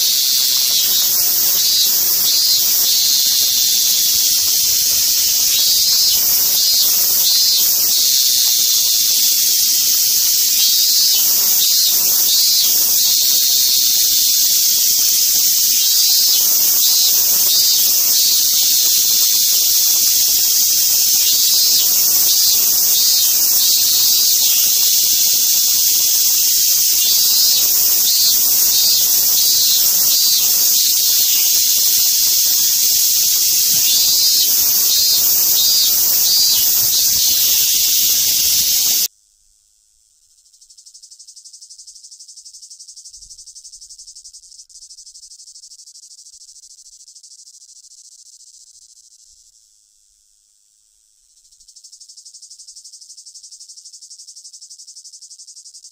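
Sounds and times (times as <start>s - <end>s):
cicadas buzzing: 0.0s - 39.1s, 40.2s - 49.8s, 51.1s - 55.9s.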